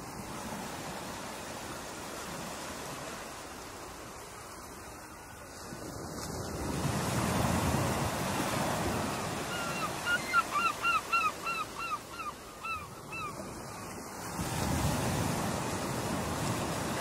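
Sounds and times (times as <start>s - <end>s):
ocean surf breaking: 5.5s - 11.8s, 13.0s - 17.0s.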